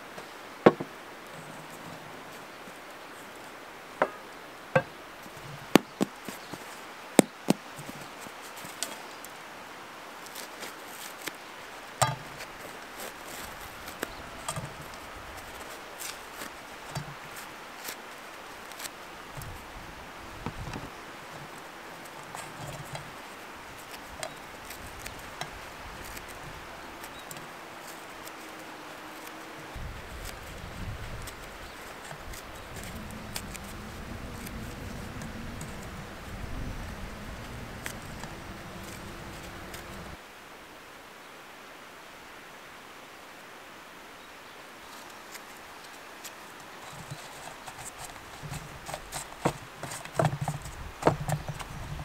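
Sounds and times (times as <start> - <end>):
faint outdoor background noise: 0.0 - 52.0
crusty bread tearing: 12.4 - 19.7, 21.5 - 40.2.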